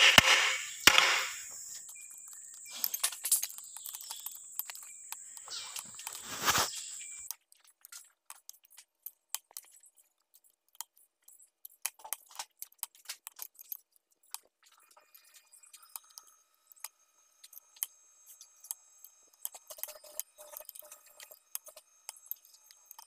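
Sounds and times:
loud metal knock: 0.0 - 1.4
small clicks: 0.2 - 23.0.

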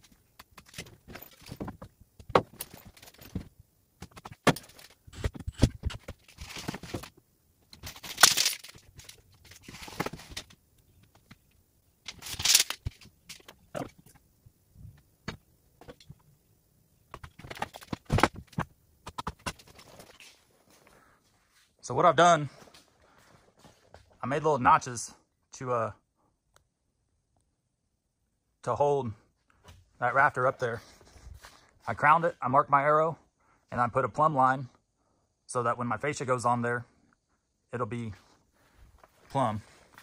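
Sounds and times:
tool-belt hardware jingling: 0.5 - 1.8, 2.4 - 3.5, 7.7 - 10.5, 12.1 - 14.1.

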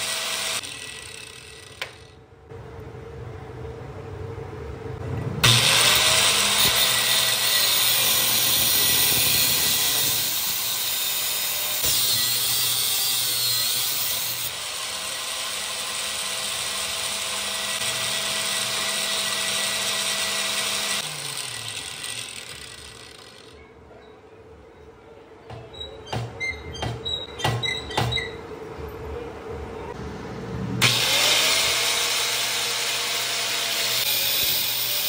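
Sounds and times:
angle grinder cutting steel: 0.0 - 2.2, 5.4 - 23.6, 30.8 - 35.0.

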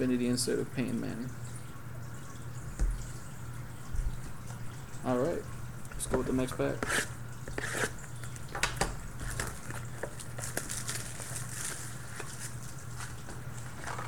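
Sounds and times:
card pack wrapper crinkling and tearing: 9.3 - 12.6.

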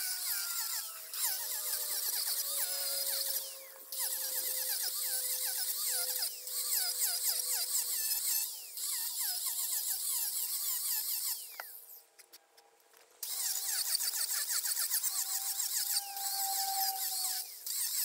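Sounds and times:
grinder spinning down: 0.0 - 11.9, 13.2 - 18.0
angle grinder cutting wood: 0.0 - 12.0, 13.2 - 18.0.

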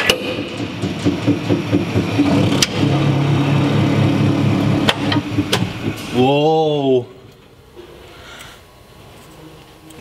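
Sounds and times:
hydraulic pump motor drone: 0.0 - 6.6.

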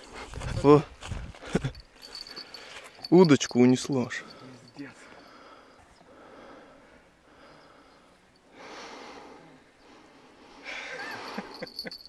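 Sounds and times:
man snorting breath: 4.2 - 11.7.

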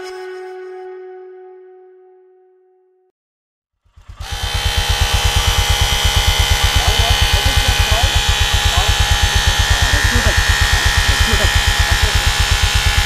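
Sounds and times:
electric air compressor chugging: 3.8 - 13.0.

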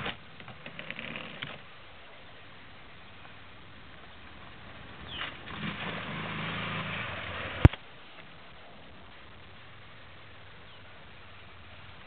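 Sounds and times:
atv engine revving: 4.6 - 7.8.

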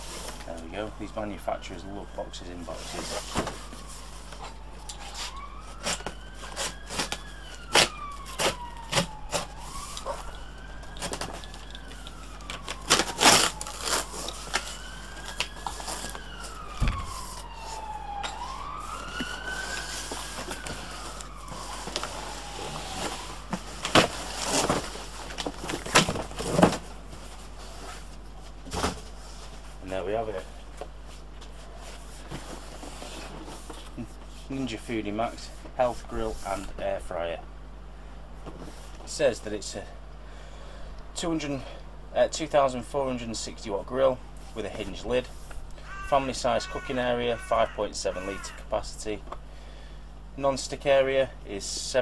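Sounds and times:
siren wailing: 0.3 - 26.6, 45.8 - 49.0.

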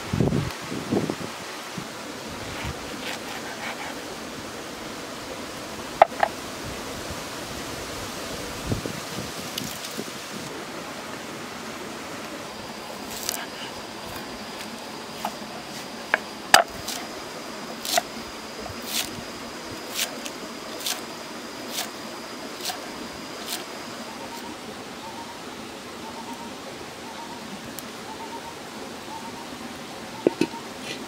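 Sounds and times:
steady hiss: 0.0 - 31.0
faint high chirps: 22.6 - 25.4.

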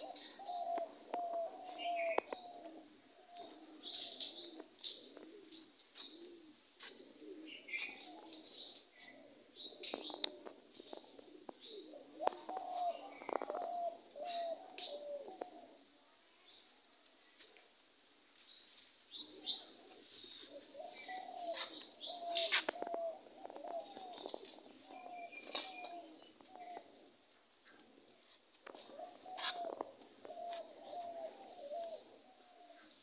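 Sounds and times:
doves cooing: 0.0 - 16.2, 19.1 - 33.0
small birds chirping: 0.0 - 17.6, 18.4 - 33.0.

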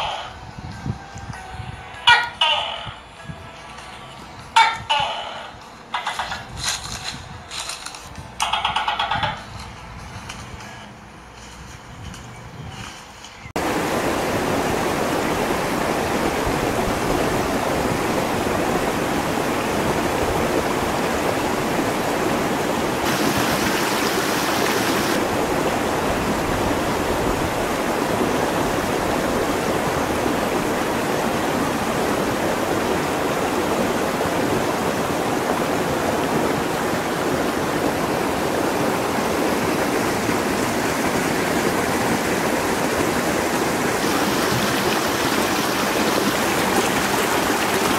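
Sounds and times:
stream rushing over stones: 13.6 - 47.9.

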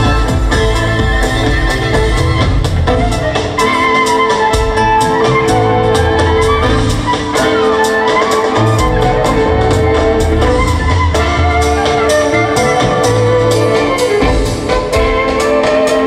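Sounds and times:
guitar: 0.0 - 16.0
percussion beat: 0.0 - 16.0
violin melody: 0.0 - 16.0.

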